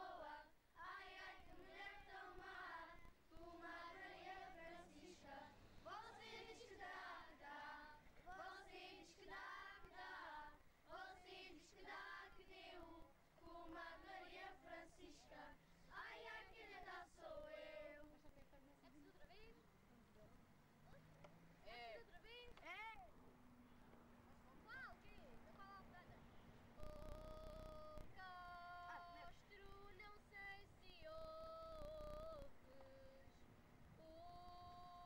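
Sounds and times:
children's choir singing unaccompanied: 0.0s - 18.1s.

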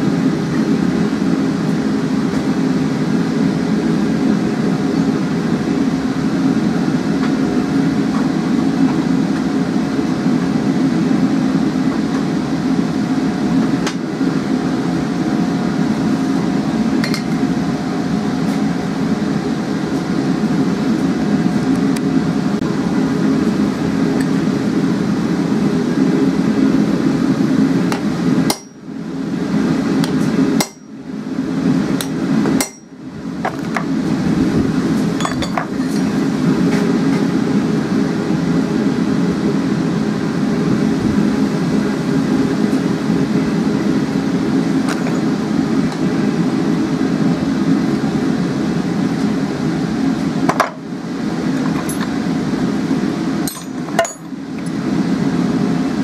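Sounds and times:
hammer striking punch on metal: 28.5s - 28.8s, 30.6s - 30.9s, 32.6s - 32.9s.

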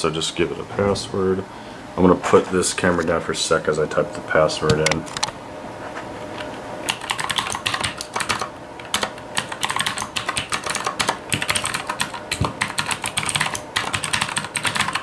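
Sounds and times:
typing on computer keyboard: 6.9s - 15.0s.

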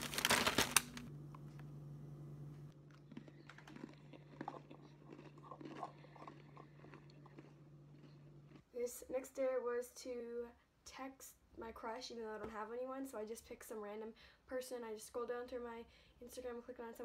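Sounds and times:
steady low hum: 0.0s - 17.0s
person chewing and crunching: 2.7s - 8.8s.

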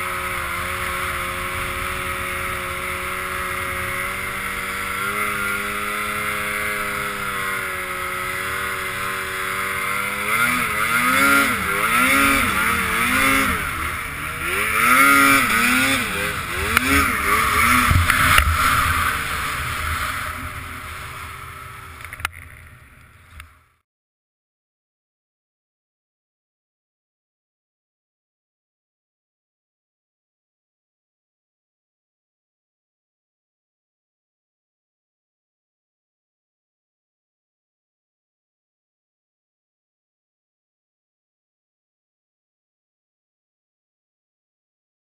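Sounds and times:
snowmobile engine revving: 0.0s - 23.8s.

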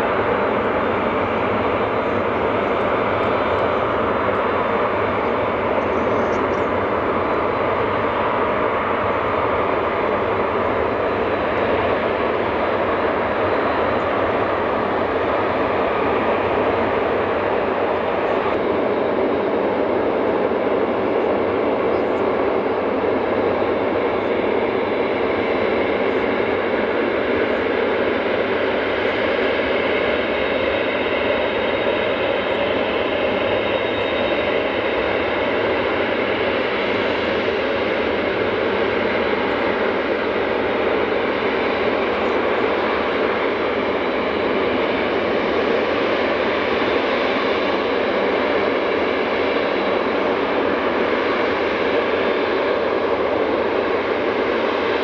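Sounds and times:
high steady engine whine: 0.0s - 55.0s
jet engines at low power: 0.0s - 55.0s.

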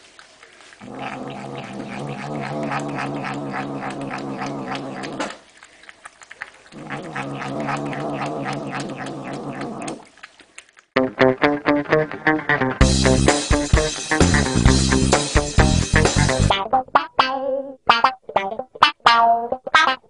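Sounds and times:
cat growling hum: 0.8s - 5.7s, 6.4s - 10.1s.

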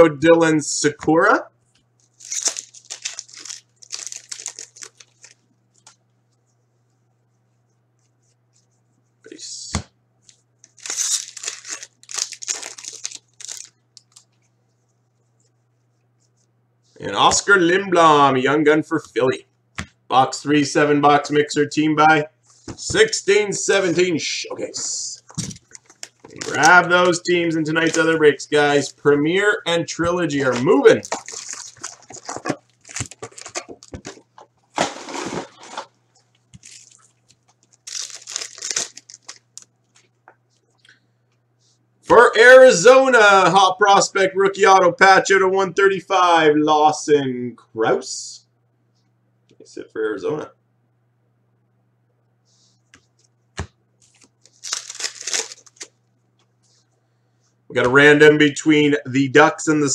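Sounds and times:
foil wrapper tearing and crinkling: 2.1s - 5.4s, 10.6s - 14.2s, 25.4s - 26.9s, 30.6s - 34.2s, 34.8s - 35.9s, 36.5s - 39.7s, 54.0s - 55.9s.

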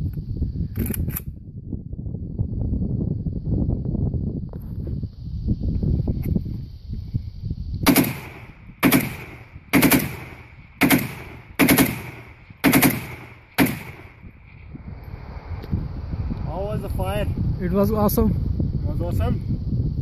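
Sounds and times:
rifle shots echoing: 7.8s - 14.5s.

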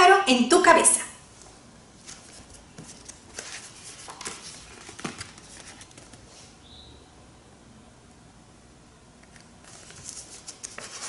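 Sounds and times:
book pages clicking and rustling: 2.0s - 6.4s, 9.3s - 11.0s.

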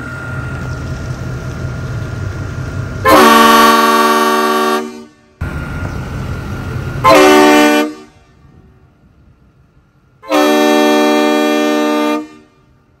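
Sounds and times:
air horn blasts: 3.0s - 5.4s, 7.0s - 8.4s, 10.2s - 12.7s.

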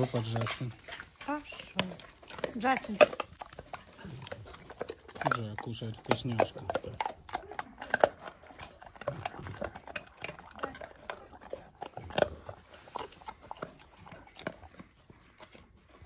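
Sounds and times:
dog chewing a treat: 0.0s - 16.0s.

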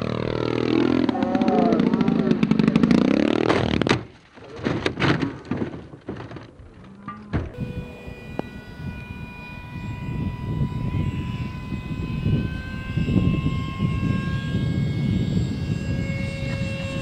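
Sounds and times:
model aircraft motor whine: 7.5s - 17.0s.

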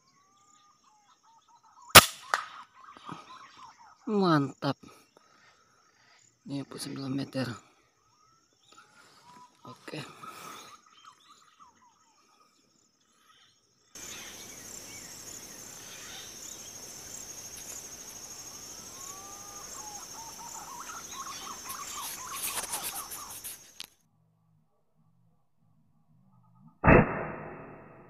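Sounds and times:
insects trilling: 0.0s - 23.9s
short bird calls: 13.2s - 23.8s
steady hiss: 14.0s - 23.9s.

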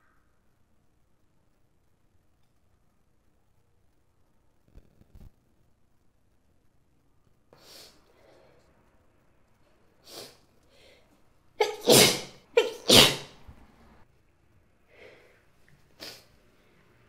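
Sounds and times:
woman's sharp in-breaths: 10.0s - 11.1s
woman sneezing: 11.6s - 13.4s.

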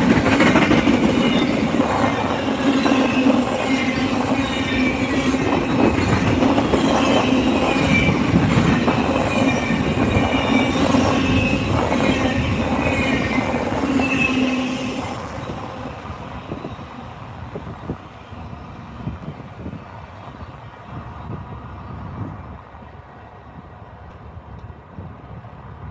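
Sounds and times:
train wheels rolling on rails: 0.0s - 25.9s
wheel squeal: 1.1s - 15.5s.

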